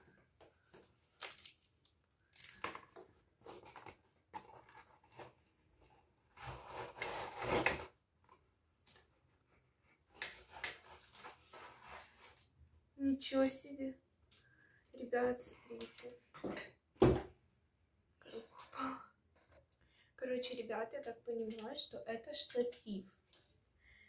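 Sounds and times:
cardboard box scraping: 0:06.3 - 0:07.9.

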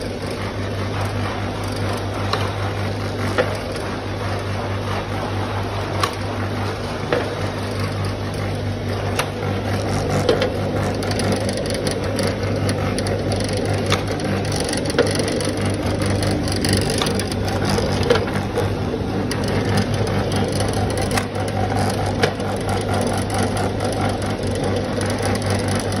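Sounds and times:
electric motor hum: 0:00.0 - 0:26.0
sharp machine clicks: 0:07.1 - 0:26.0.

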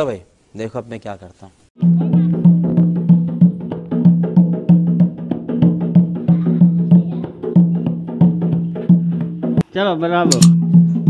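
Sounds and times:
hand drum beaten: 0:01.8 - 0:09.6, 0:10.3 - 0:11.0.

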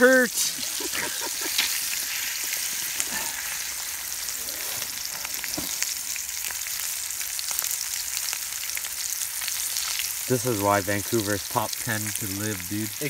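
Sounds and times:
fish frying in oil: 0:00.0 - 0:13.0.

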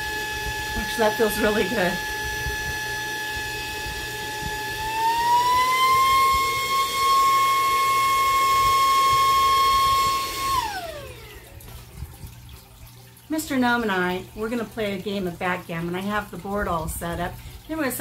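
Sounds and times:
vacuum motor whining: 0:00.0 - 0:11.6.

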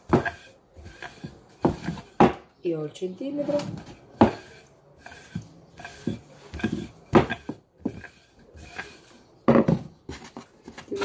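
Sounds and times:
rolling pin on dough: 0:00.0 - 0:02.5, 0:03.4 - 0:11.0
thuds on wooden board: 0:01.6 - 0:02.5, 0:09.5 - 0:09.9.

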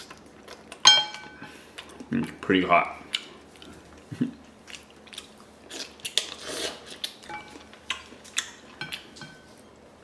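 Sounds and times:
wet mouth eating noises: 0:03.0 - 0:09.2
slurping: 0:05.7 - 0:07.2.

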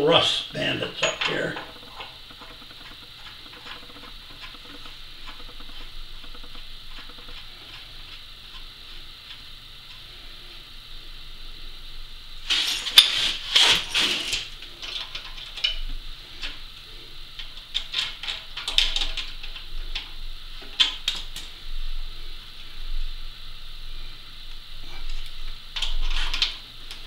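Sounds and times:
steel tools clinking on metal: 0:00.9 - 0:02.0.

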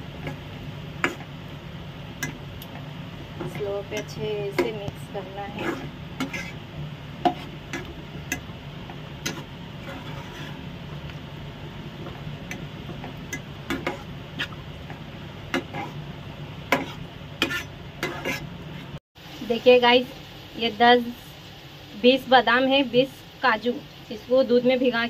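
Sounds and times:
spatula stirring thick food in pan: 0:00.0 - 0:19.0
steady low hum: 0:00.0 - 0:19.5.

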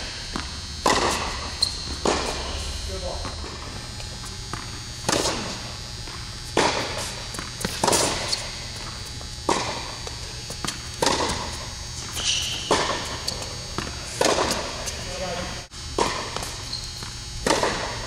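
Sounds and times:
tennis ball struck and bouncing: 0:00.3 - 0:03.7, 0:04.5 - 0:05.6, 0:06.5 - 0:08.4, 0:09.5 - 0:14.7, 0:16.0 - 0:16.5, 0:17.4 - 0:18.0.

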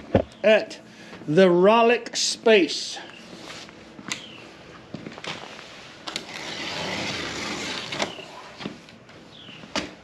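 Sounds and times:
cardboard box scraping on concrete: 0:06.2 - 0:08.3.

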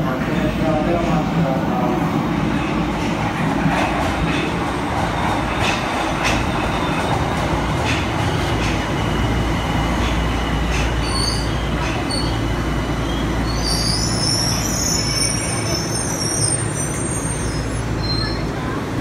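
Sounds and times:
train wheels rushing on rail: 0:00.0 - 0:19.0
high wheel squeal: 0:11.0 - 0:12.4, 0:13.0 - 0:18.5.

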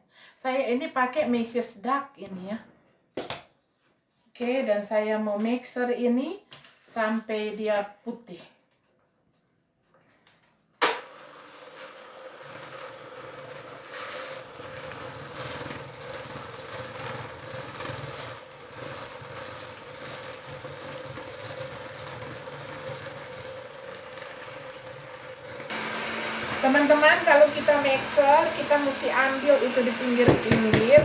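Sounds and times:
electric hand mixer whining: 0:11.0 - 0:31.0.

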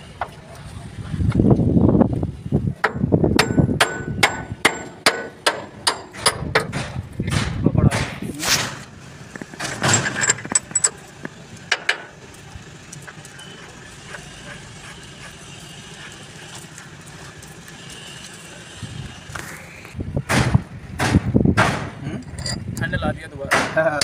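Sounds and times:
metallic knocks: 0:02.8 - 0:08.2.

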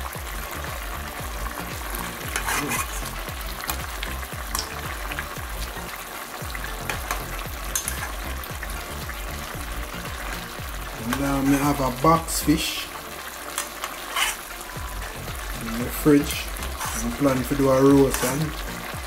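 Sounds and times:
stew sizzling in a metal pot: 0:00.0 - 0:19.0.

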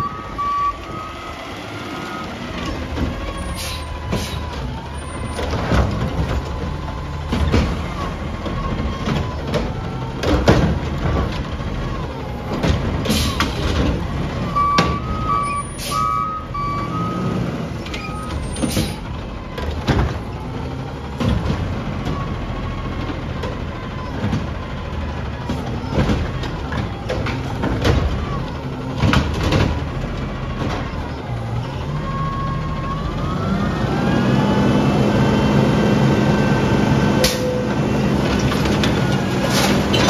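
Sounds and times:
two-tone beeps: 0:00.0 - 0:01.1
garbage truck engine running: 0:00.0 - 0:40.0.

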